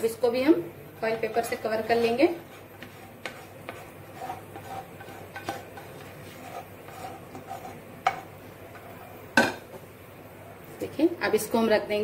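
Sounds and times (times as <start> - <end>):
spatula scraping paper cup: 1.1 - 8.3.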